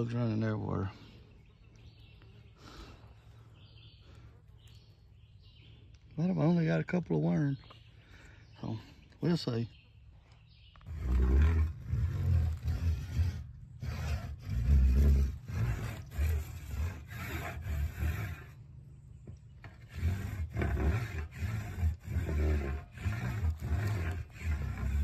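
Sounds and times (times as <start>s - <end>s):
deep rumbling vibration: 10.7s - 25.0s
saw rasping on wood: 10.8s - 18.7s, 19.6s - 25.0s.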